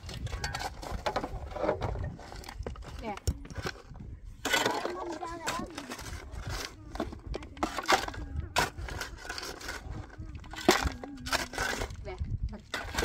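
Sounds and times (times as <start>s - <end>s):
shovel scraping: 0.0s - 3.8s, 4.4s - 13.0s
rocks clattering into a basin: 4.4s - 12.0s.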